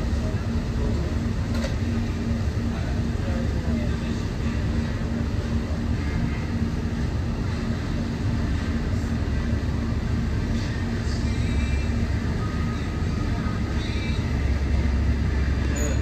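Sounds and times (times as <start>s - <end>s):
ferry engine drone: 0.0s - 16.0s.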